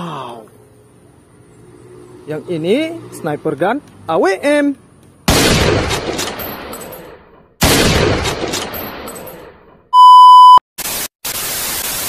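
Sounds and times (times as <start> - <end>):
sniper rifle shot echoing: 7.6 - 8.8
electronic test-tone beep: 10.0 - 10.6
tv static burst: 10.8 - 12.0.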